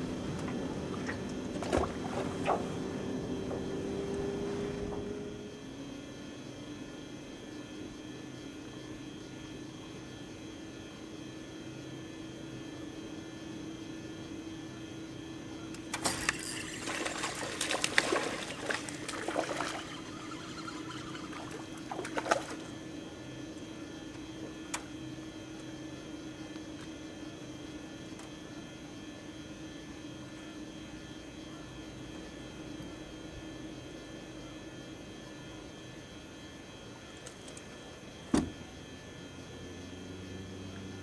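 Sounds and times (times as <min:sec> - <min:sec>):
steady low hum: 0:00.0 - 0:41.0
water splashing: 0:16.0 - 0:22.8.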